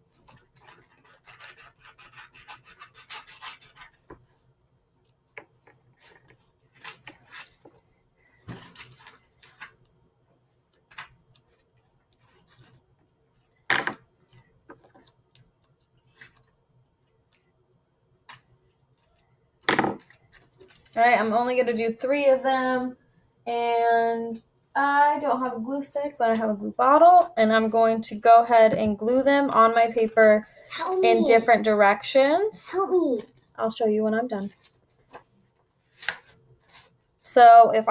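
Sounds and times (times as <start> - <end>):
paper rustling and crinkling: 5.9 - 7.8, 8.4 - 9.8, 14.7 - 16.6, 34.4 - 37.0.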